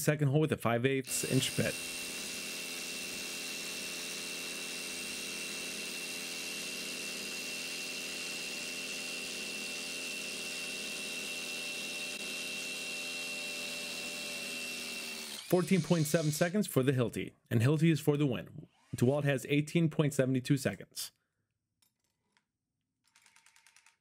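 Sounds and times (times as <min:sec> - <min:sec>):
dust extraction vacuum: 0:01.0 - 0:03.5
hammer drill boring into concrete: 0:01.0 - 0:16.7, 0:23.0 - 0:24.0.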